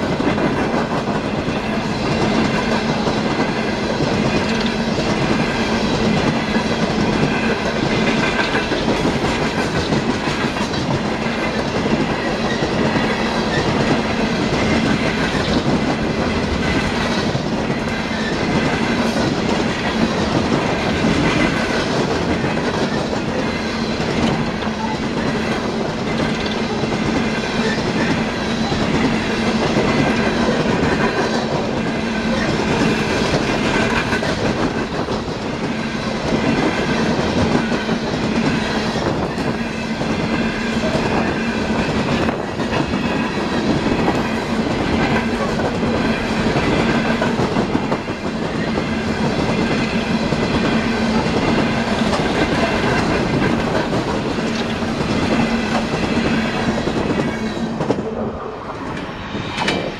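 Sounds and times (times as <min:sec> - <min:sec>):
steady train hum: 0:00.0 - 0:59.9
train wheels clacking on rail joints: 0:00.0 - 0:59.9.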